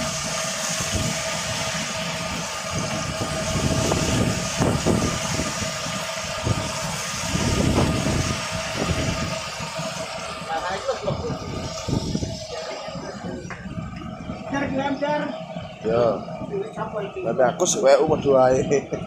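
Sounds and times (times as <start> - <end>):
food frying in oil: 0.0 - 16.1
boat engine running: 0.0 - 19.0.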